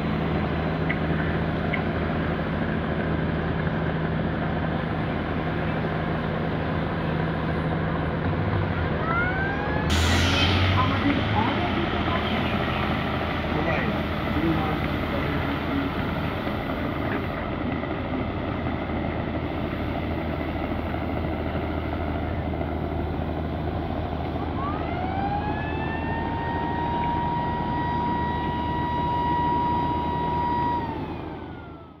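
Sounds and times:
boat engine rumble and wash: 0.0s - 32.0s.

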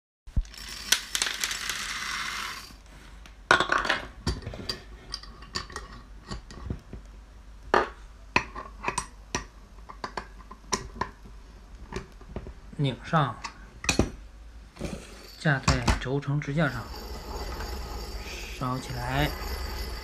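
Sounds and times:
corn kernels rattling into metal pot: 16.6s - 20.0s.

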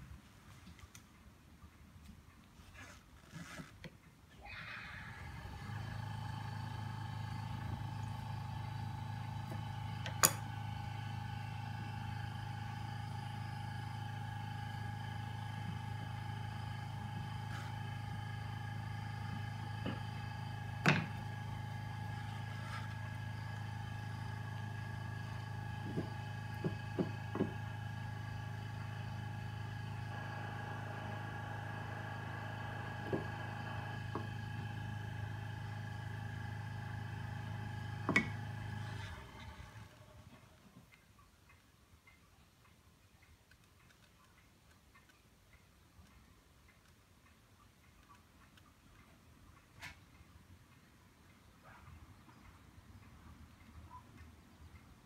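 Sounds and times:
electrical machine hum: 4.4s - 43.6s.

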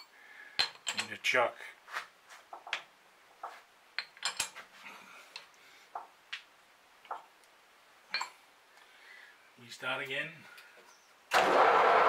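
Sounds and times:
light metallic clicks and clinks: 0.0s - 1.2s, 4.0s - 4.6s, 8.1s - 8.4s.

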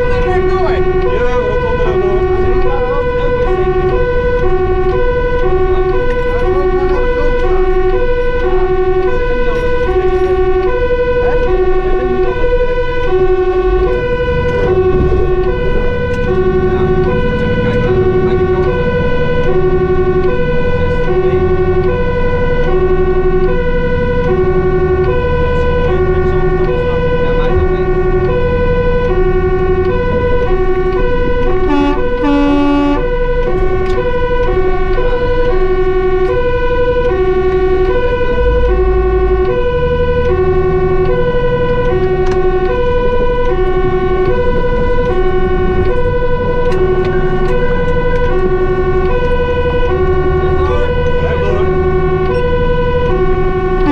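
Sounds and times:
fire engine two-tone siren: 0.0s - 53.9s
truck engine: 0.0s - 53.9s
short horn-like tone: 31.7s - 33.1s.

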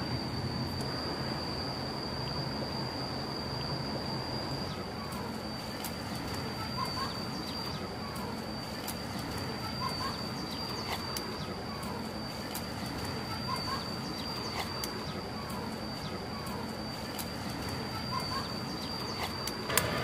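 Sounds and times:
high-pitched whine: 0.0s - 20.0s
bird calling: 4.5s - 20.0s
faint ticks: 7.5s - 19.9s.

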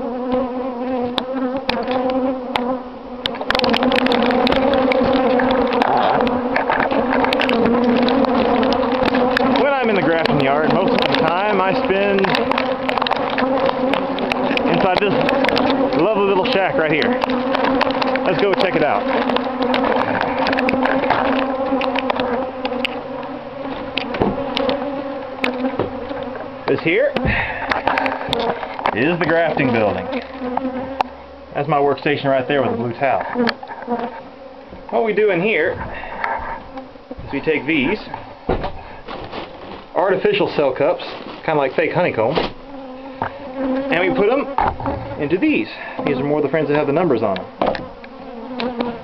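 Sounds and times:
honey bees buzzing: 0.0s - 49.0s
sharp clicks and crackles: 0.3s - 29.0s
dull knock: 24.2s - 24.4s, 38.5s - 38.8s.

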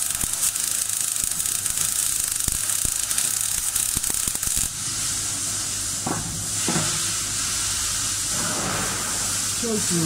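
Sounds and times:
welding arc crackling: 0.0s - 5.9s
steady hiss: 0.0s - 10.0s.

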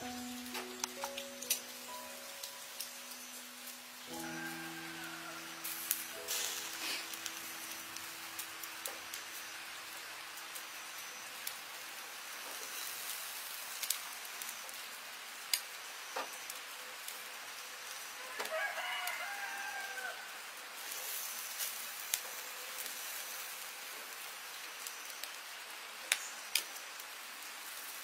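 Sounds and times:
steady hiss: 0.0s - 28.0s
rooster crowing: 4.1s - 6.7s, 18.2s - 20.4s.

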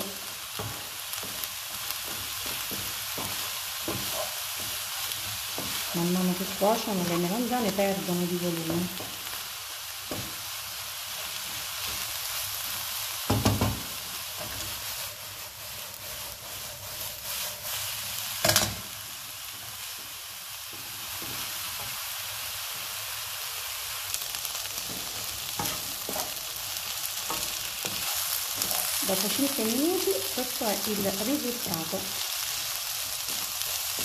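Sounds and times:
food sizzling in a frying pan: 0.0s - 34.0s
wooden spoon knocking on pan: 0.6s - 4.8s, 10.1s - 10.4s, 13.3s - 14.6s.

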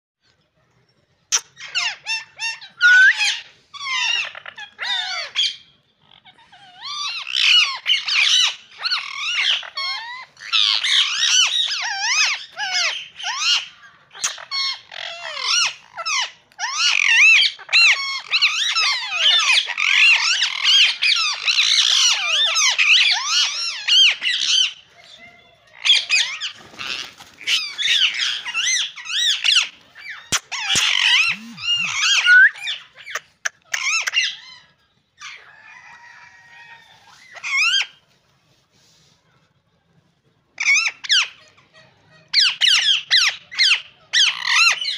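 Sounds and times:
parakeets chattering: 1.3s - 25.2s, 25.8s - 35.4s.

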